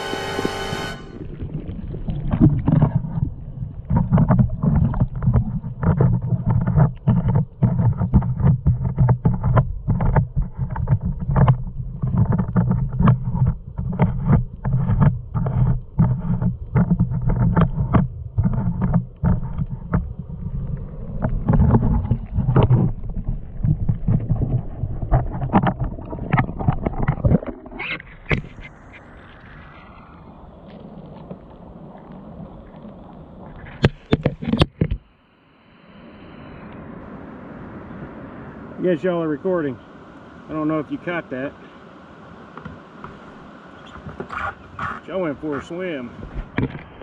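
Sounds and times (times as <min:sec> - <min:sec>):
paddle splashes and knocks: 0:00.0 - 0:29.7, 0:33.4 - 0:35.1, 0:42.5 - 0:47.0
water rumbling against kayak hull: 0:00.0 - 0:35.2, 0:38.8 - 0:47.0.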